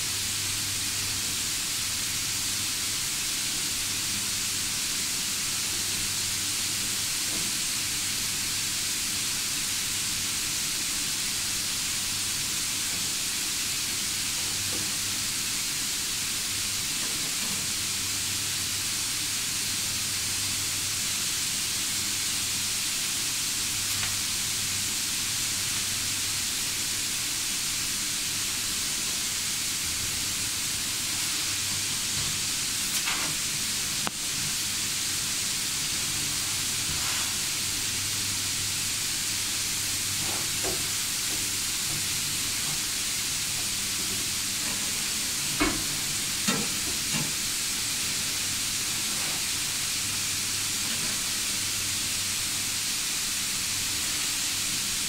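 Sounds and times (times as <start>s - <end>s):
steady hiss: 0.0s - 55.0s.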